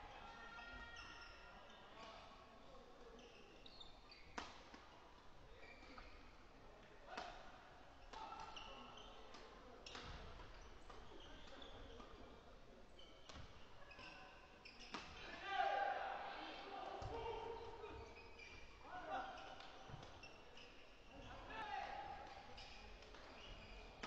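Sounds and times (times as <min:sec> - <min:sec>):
shoe squeaks on floor: 0:03.2 - 0:04.5, 0:05.5 - 0:06.2, 0:08.2 - 0:12.2, 0:13.0 - 0:15.3, 0:17.1 - 0:21.5, 0:22.3 - 0:24.0.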